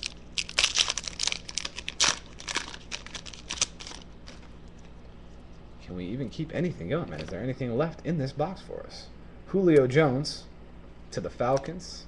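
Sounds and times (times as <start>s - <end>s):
foil wrapper crinkling and tearing: 0.0s - 4.9s.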